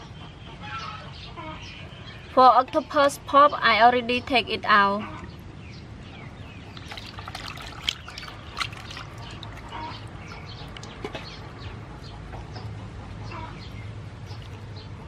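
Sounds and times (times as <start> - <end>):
wet squelching and dripping: 6.5 - 11.3, 14.3 - 14.7
sharp water splashes: 6.6 - 11.1.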